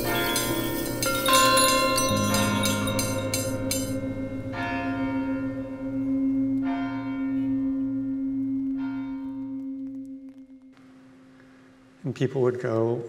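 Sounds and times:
bells ringing in a clanging clatter: 0.0 - 5.9
large bell humming: 0.0 - 10.3.

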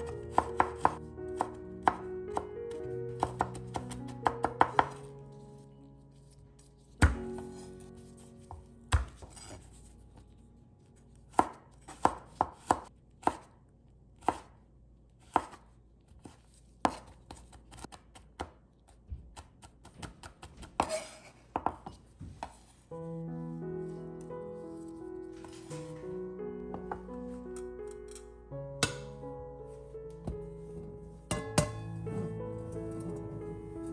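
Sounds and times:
background music: 0.0 - 12.8, 22.9 - 33.9
knife chopping on wooden board: 8.9 - 9.6, 11.3 - 13.5, 15.3 - 15.6.

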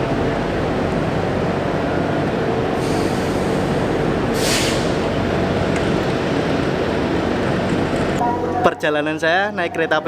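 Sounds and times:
train mechanical hum: 0.0 - 8.6
air hiss: 2.8 - 5.0.

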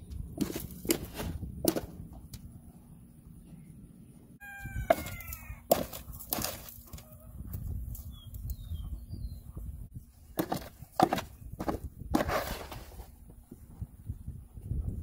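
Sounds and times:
chicken squawk: 4.4 - 5.8
horse knocking feed tub: 10.4 - 12.7.

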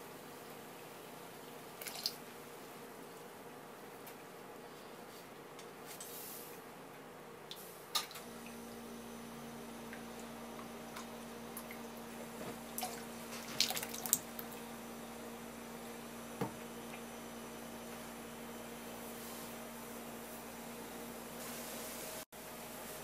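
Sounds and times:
steady low hum: 0.0 - 23.0
dripping: 1.8 - 2.2, 12.6 - 14.6.

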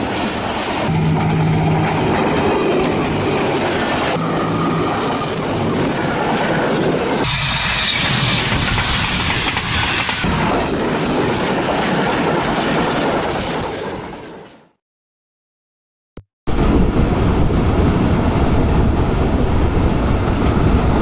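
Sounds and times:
train wheels rushing on rails: 0.0 - 14.4
clickety-clack over rail joints: 5.0 - 14.6.

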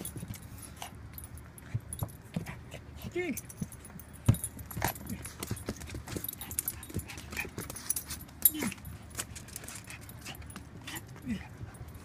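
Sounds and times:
small dogs scuffling: 3.4 - 12.0.

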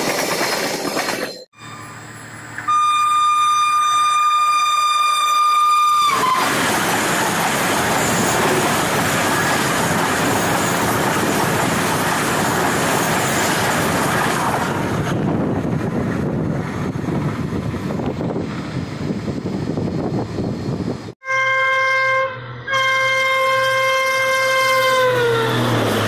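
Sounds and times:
train horn: 2.6 - 6.6, 21.2 - 25.8
train rushing past: 5.9 - 21.2, 22.2 - 26.0.

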